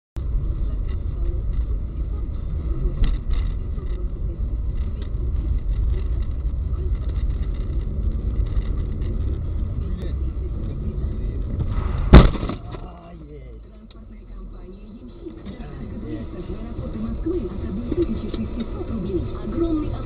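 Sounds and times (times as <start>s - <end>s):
car road and engine rumble: 0.2s - 20.0s.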